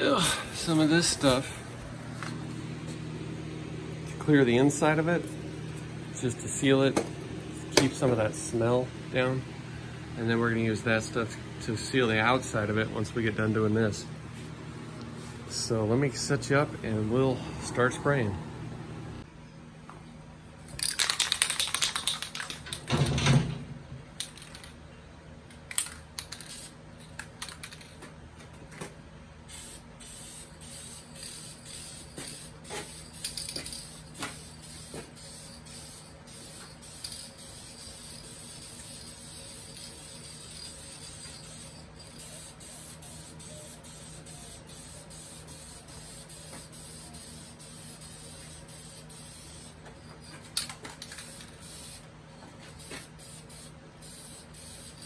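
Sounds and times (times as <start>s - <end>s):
spray can clicking and knocking: 20.8s - 22.7s
aerosol spray hissing: 29.5s - 49.8s, 51.2s - 52.1s, 52.8s - 55.0s.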